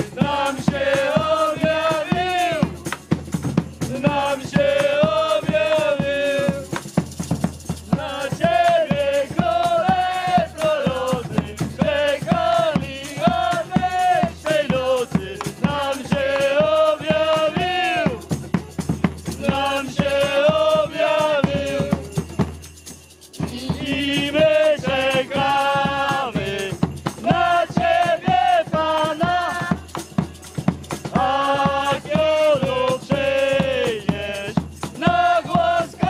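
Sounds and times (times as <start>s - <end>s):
rattle shaken in a beat: 0.0s - 36.0s
person singing: 23.4s - 29.8s.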